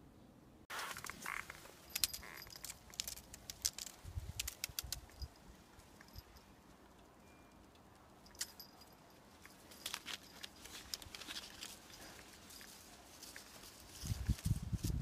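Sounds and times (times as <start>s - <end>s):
cat rustling on grass: 0.7s - 6.0s, 9.3s - 15.0s.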